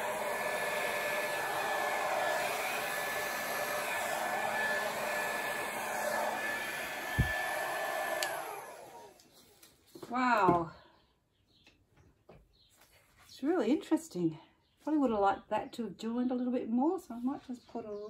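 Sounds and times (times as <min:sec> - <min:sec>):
hair dryer whine: 0:00.0 - 0:09.4
low thump: 0:07.1 - 0:07.4.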